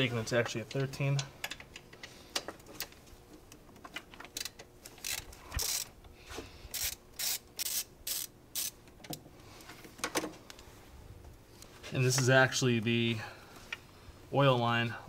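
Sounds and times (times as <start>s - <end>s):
socket ratchet clicking: 6.7s - 8.8s.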